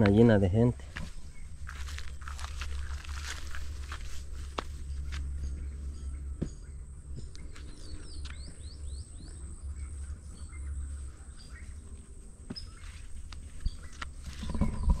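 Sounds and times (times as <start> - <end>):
wind rumble on microphone: 13.3 - 15.0.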